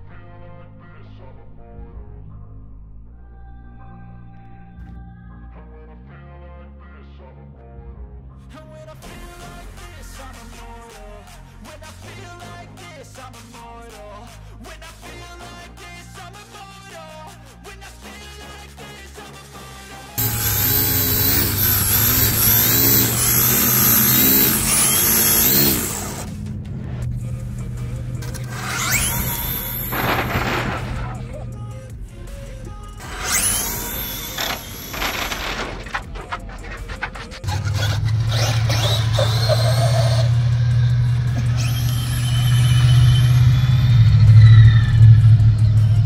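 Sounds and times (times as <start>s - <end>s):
electric motor whine revving: 20.2s - 26.5s, 27.6s - 31.3s, 33.0s - 46.0s.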